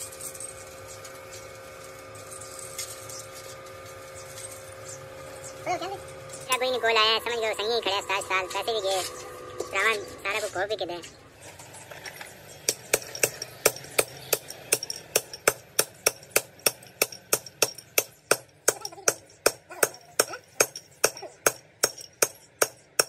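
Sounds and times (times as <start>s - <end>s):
hammer tapping on metal: 12.7s - 23.0s.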